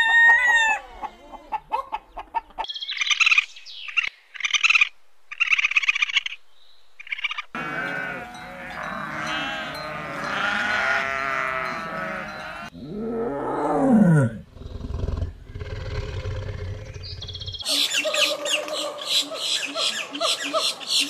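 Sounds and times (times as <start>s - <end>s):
goats bleating: 7.6s - 12.8s
tiger roaring: 12.7s - 17.6s.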